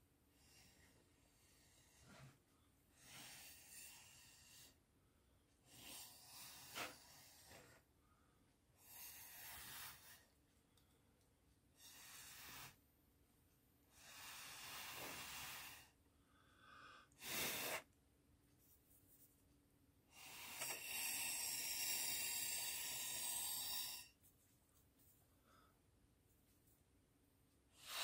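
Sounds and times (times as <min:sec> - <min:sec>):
breath blown through a straw: 0:11.8 - 0:12.8, 0:13.9 - 0:15.9, 0:17.2 - 0:17.9, 0:20.2 - 0:24.2.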